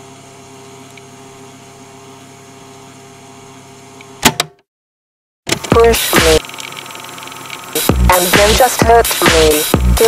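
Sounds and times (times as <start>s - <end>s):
electrical hum and hiss: 5.5s - 10.0s
steady electronic tones: 5.7s - 10.0s.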